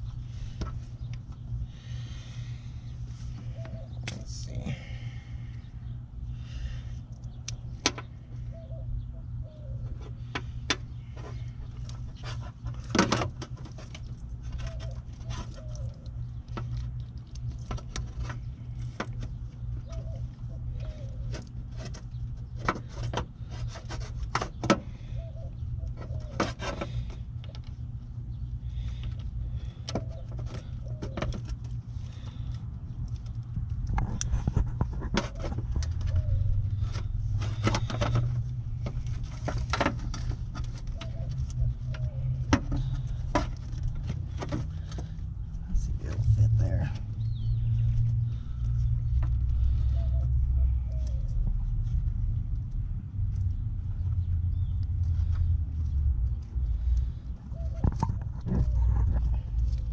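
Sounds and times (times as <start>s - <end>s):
steady low rumble: 0.0s - 59.9s
plastic parts and wiring clicking: 28.7s - 46.4s.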